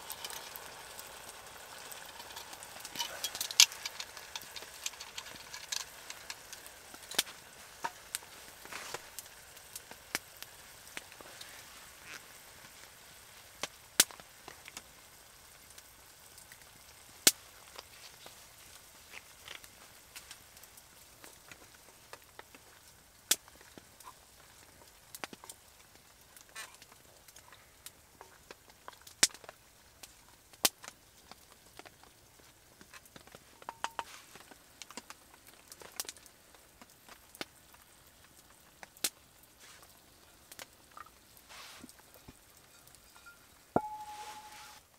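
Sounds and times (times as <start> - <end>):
faint steady hiss: 0.0 - 44.9
wood fire crackling: 0.0 - 44.9.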